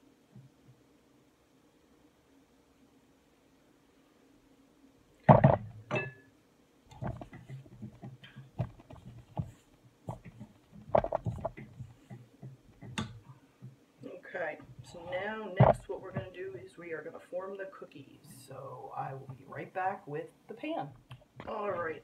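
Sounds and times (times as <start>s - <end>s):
utensil knocking steel bowl: 5.3s - 6.2s
spatula scraping and tapping bowl: 6.9s - 13.8s.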